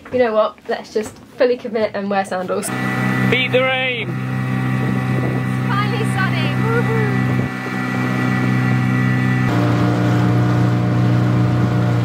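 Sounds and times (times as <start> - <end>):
outboard motor running: 2.5 - 12.0.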